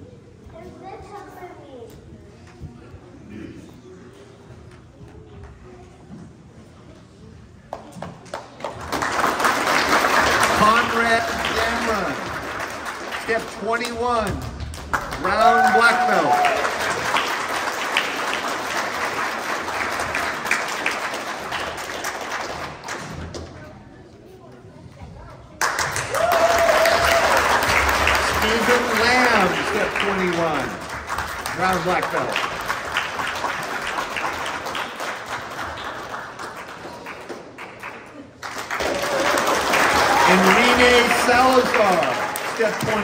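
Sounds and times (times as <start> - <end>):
audience applauding: 8.3 - 23.0, 25.6 - 43.0.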